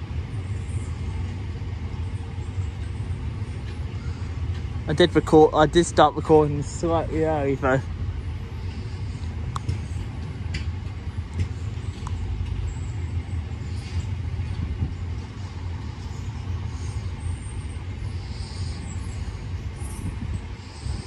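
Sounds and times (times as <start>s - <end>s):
vehicle engine rumbling: 0.0s - 21.0s.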